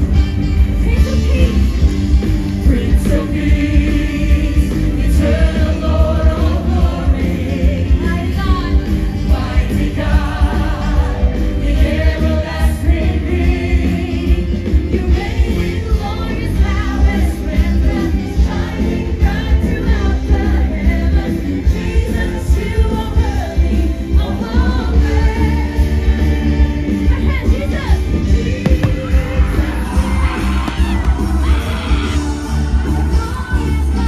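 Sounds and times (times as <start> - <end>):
gospel choir singing: 2.6 - 34.0
heavy bass line: 28.6 - 34.0.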